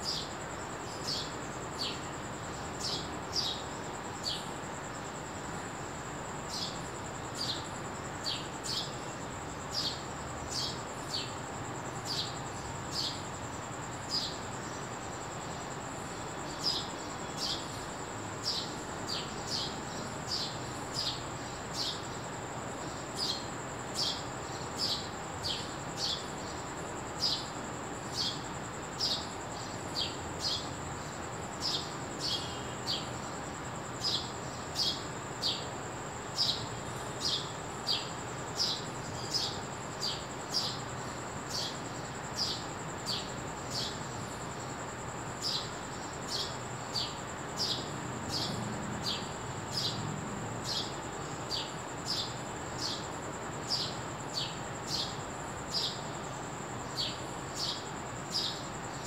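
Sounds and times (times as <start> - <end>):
sparrow chirping: 50.6 - 53.1, 53.7 - 56.0.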